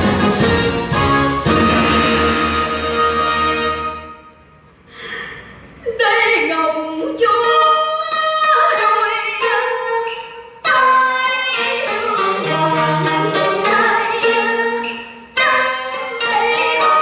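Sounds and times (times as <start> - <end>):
instrumental accompaniment: 0.0 - 4.8, 10.5 - 17.0.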